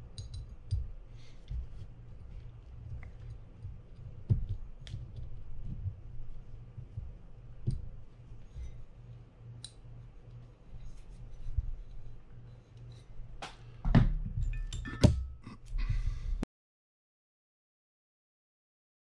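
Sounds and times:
small clicks of reel parts: 0.1 - 1.6, 9.6 - 10.4.

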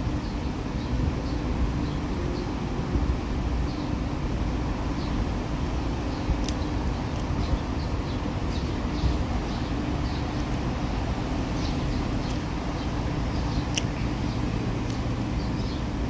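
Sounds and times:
highway traffic rumble: 0.0 - 16.0
small birds chirping: 4.9 - 16.0.

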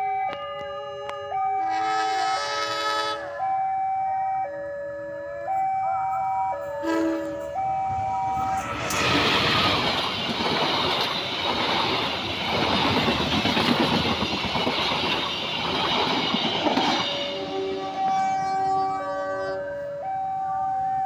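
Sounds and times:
level crossing alarm tones: 0.0 - 11.2, 15.9 - 21.0
train wheels rattling on rails: 6.9 - 18.8.

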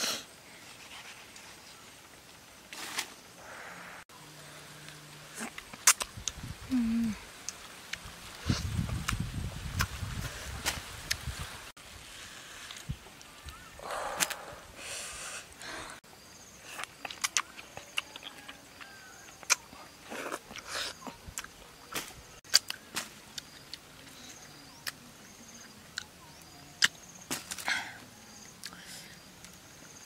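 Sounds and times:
wet mango eating sounds: 5.0 - 11.5, 16.6 - 27.7.

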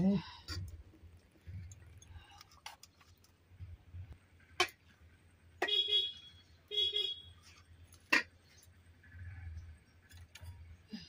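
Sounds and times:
vehicle horn honking: 5.6 - 7.3.

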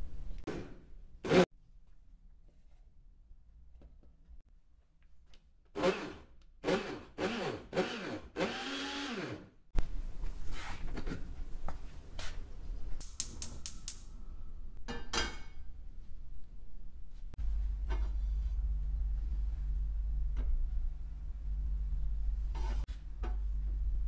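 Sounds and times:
blender motor whirring: 5.8 - 9.5.

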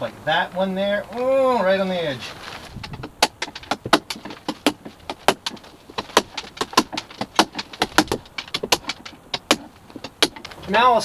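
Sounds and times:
chisel knocking on wood: 2.8 - 10.6.

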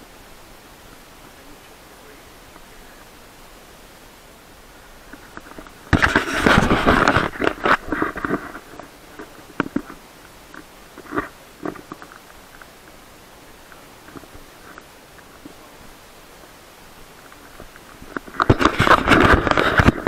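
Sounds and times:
camera handling rumble: 5.1 - 10.0, 17.3 - 20.0.

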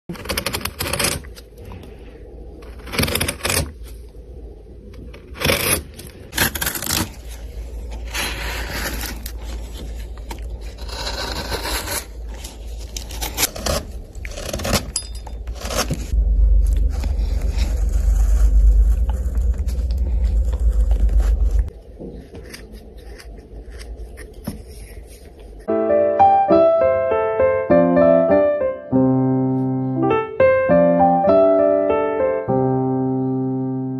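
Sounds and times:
chisel scraping wood: 0.1 - 1.4, 2.6 - 3.8, 5.1 - 25.3
low rumble: 3.7 - 25.7.

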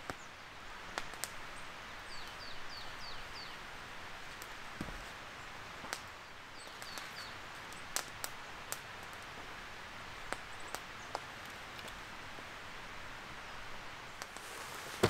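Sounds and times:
steady outdoor hiss: 0.0 - 15.0
sharp crackles: 5.8 - 9.5, 10.1 - 12.5, 14.0 - 15.0.

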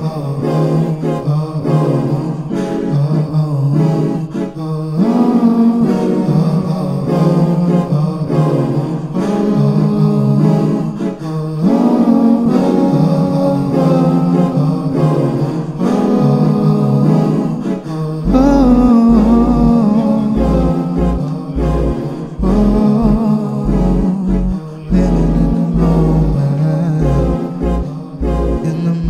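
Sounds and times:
looped vocal harmonies: 0.0 - 29.0
deep bass notes: 18.2 - 29.0.

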